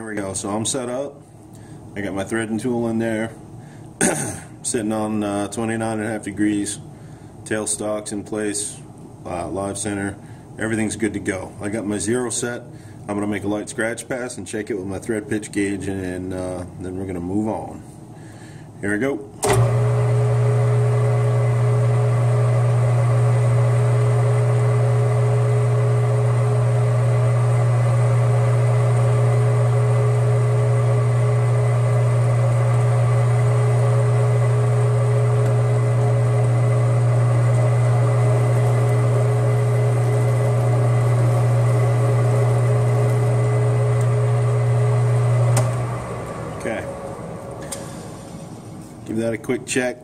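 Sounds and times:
metal lathe running: 0:19.5 - 0:48.9.

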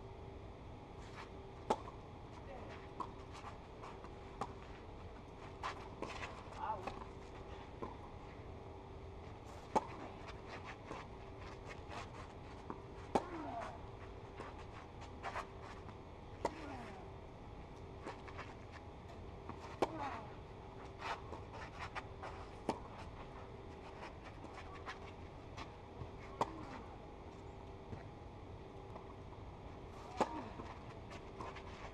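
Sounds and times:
faint hum: 0:00.0 - 0:31.9
tennis racket hitting ball: 0:30.0 - 0:31.7.

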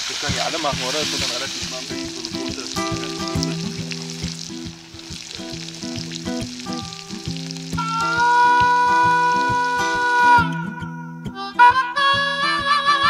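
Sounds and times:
food sizzling in a pan: 0:00.0 - 0:10.2
acoustic guitar picking: 0:00.0 - 0:13.0
harmonica chord: 0:06.1 - 0:13.0.

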